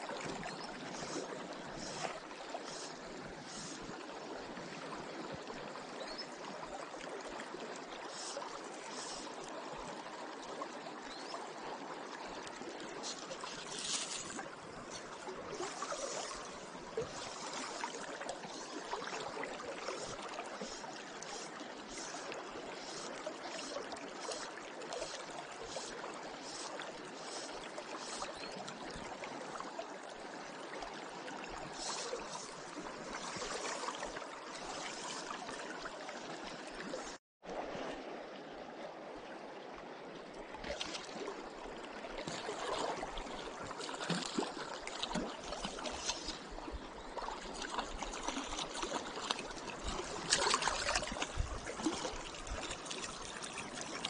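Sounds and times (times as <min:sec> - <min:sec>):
river water flowing: 0:00.0 - 0:54.0.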